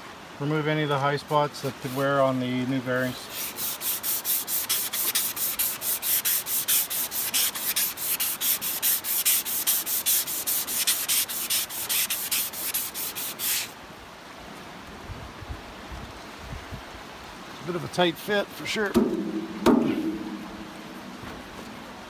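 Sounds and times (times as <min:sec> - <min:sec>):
emery cloth rubbing steel shaft: 0:03.2 - 0:13.7.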